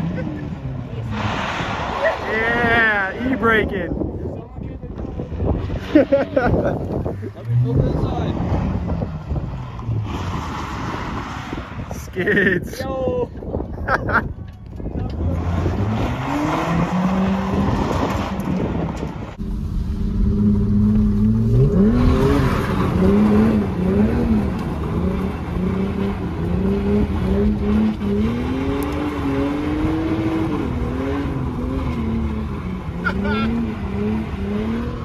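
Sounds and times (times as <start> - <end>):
tires skidding: 0.0 - 3.8, 5.3 - 12.8, 15.1 - 35.0
car engine revving: 5.4 - 12.5, 15.1 - 35.0.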